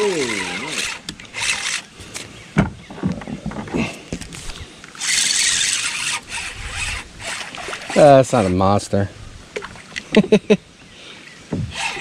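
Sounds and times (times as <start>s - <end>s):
fishing reel drag buzzing: 0.0s - 1.9s, 4.9s - 8.7s, 11.8s - 12.0s.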